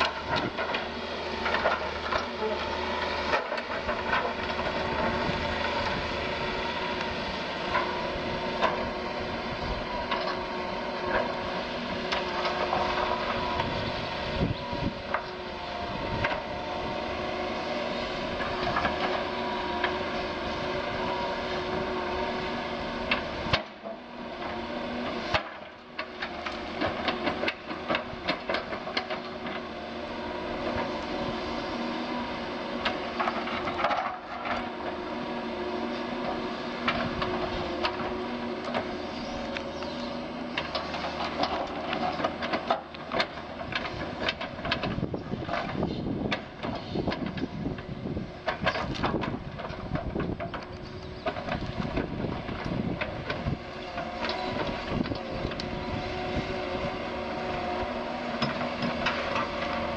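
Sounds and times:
excavator diesel engine: 0.0s - 59.9s
knocks and clatters of digging: 0.0s - 59.9s.

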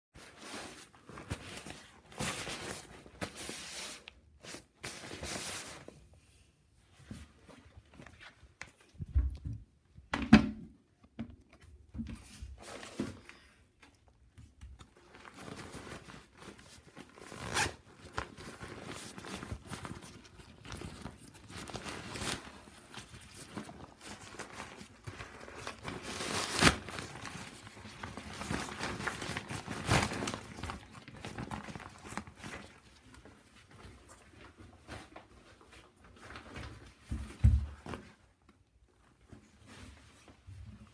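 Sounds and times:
fabric rustling: 0.2s - 6.1s, 14.9s - 37.0s.

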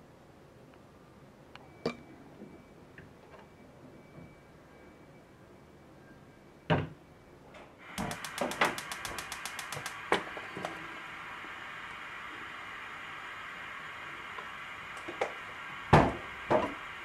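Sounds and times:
burner flame hissing: 7.8s - 17.0s
gas stove igniter clicking: 7.9s - 17.0s.

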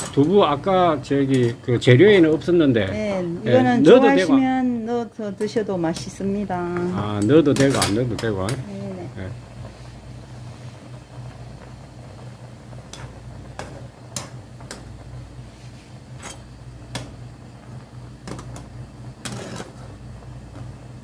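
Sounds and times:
steady low hum: 0.0s - 21.0s
stew boiling: 0.0s - 21.0s
metal ladle scraping pan: 19.2s - 19.9s.

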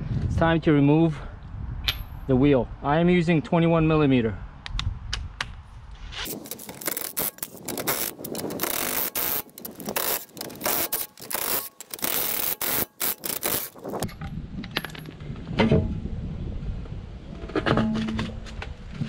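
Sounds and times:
impact wrench hammering: 6.8s - 14.1s.

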